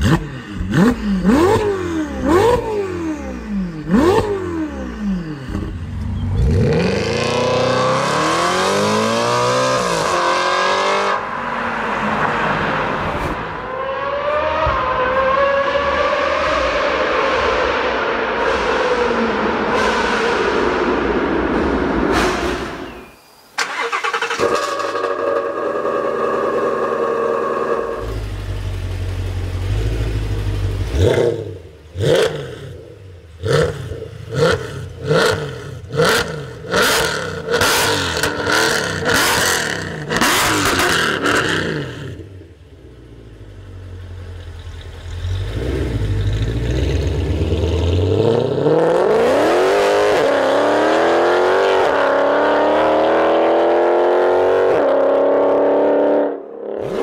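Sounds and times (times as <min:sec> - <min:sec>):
car engine revving and accelerating: 0:00.0 - 0:22.7, 0:23.8 - 0:42.6, 0:45.0 - 0:57.0.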